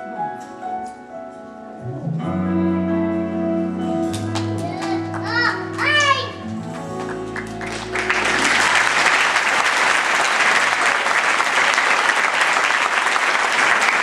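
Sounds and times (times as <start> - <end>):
music held notes: 0.0 - 9.6
audience applauding: 4.2 - 14.0.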